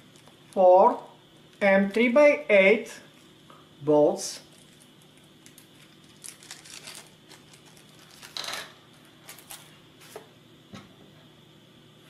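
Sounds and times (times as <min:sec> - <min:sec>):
plastic bag crinkling: 0:04.4 - 0:08.6, 0:09.2 - 0:09.7.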